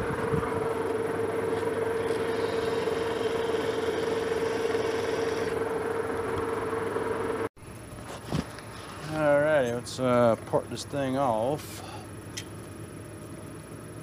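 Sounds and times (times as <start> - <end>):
metal lathe whine: 0.0 - 7.5.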